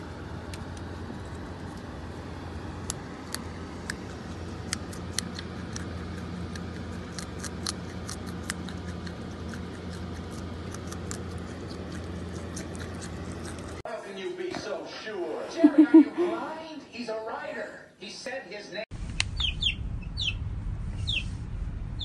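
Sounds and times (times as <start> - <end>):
steady low hum: 0.0 - 13.8, 18.9 - 22.0
groundhog chewing a carrot: 0.5 - 13.8.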